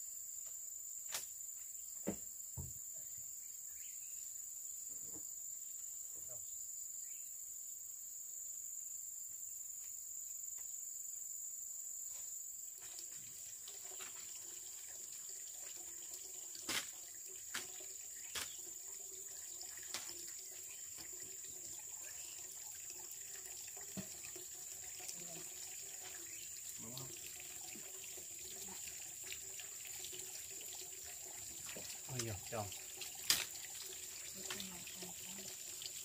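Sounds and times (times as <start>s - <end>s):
water running from tap: 12.8s - 36.0s
high-pitched insect buzz: 19.9s - 22.8s.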